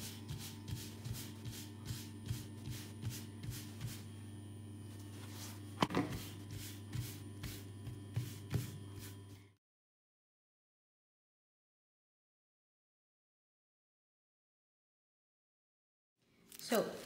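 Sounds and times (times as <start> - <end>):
palm patting dough on a pan: 0.0 - 4.1, 5.8 - 9.2
steady low hum: 0.0 - 9.6.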